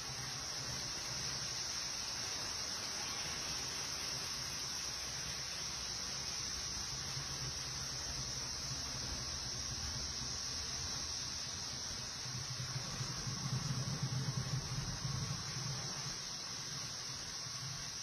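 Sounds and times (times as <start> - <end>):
high-pitched hiss: 0.0 - 18.0
low wavering hum: 12.3 - 16.6.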